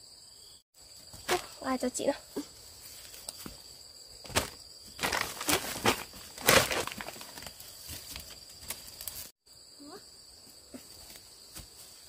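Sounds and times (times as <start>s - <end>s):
high drone of insects: 0.0s - 12.0s
crunching of dry leaf litter: 4.3s - 9.4s.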